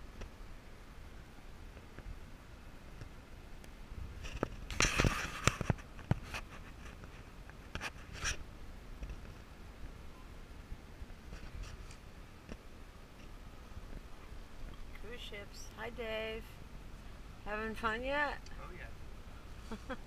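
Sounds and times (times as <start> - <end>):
faint car rumble: 8.4 - 20.0.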